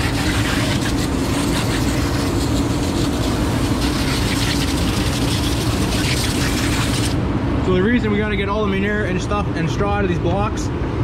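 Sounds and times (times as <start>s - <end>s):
hose spray hissing: 0.0s - 7.2s
low machine hum: 0.0s - 11.0s.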